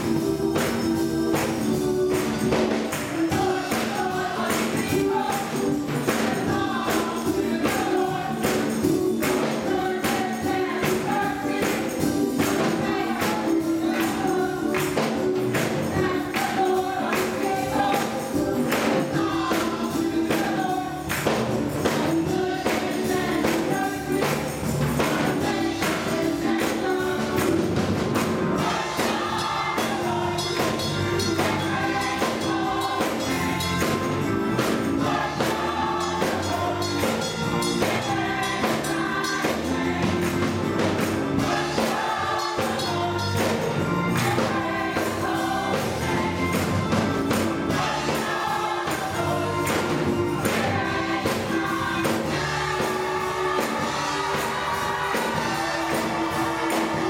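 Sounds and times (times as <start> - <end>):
gospel choir singing: 0.0 - 57.0
organ accompaniment: 0.0 - 57.0
hand-clapping: 0.6 - 5.5, 11.6 - 19.7, 21.1 - 22.1.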